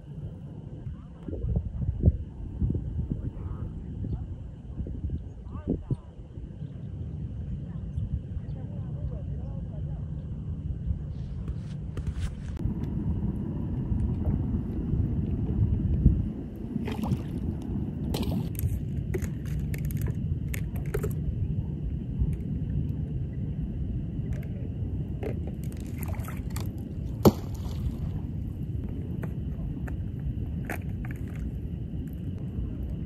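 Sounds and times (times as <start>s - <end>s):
steady low rumble: 0.0s - 33.0s
water sloshing around waders: 16.8s - 20.1s, 25.4s - 28.3s
decoy splashing into water: 27.2s - 28.2s.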